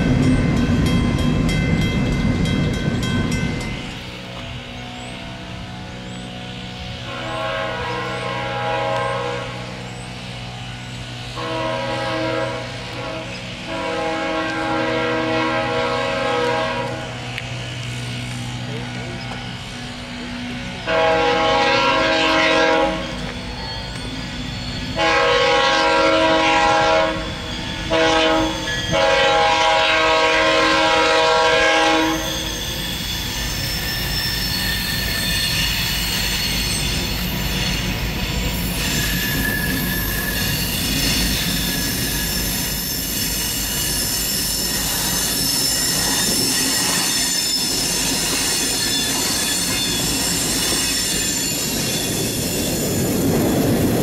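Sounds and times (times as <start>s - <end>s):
train engines and wheels rumbling: 0.0s - 54.0s
locomotive horn blowing: 6.9s - 9.9s, 11.3s - 17.4s, 20.8s - 36.7s.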